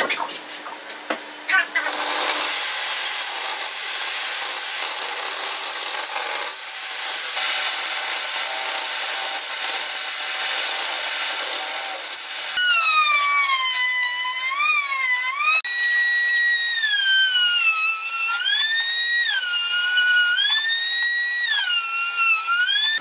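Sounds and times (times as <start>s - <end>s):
table saw cutting wood: 1.8s - 23.0s
high pitched saw whine: 12.5s - 23.0s.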